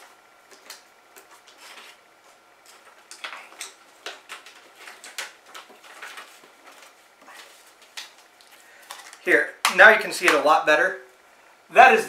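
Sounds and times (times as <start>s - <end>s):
plastic case and paper rustling: 0.5s - 9.2s.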